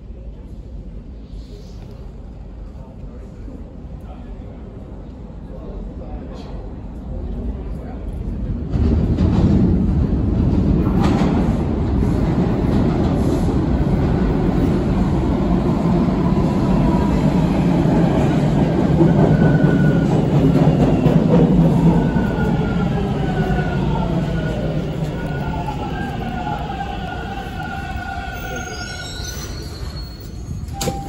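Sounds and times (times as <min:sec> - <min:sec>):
subway train wheels rumbling: 0:00.0 - 0:31.0.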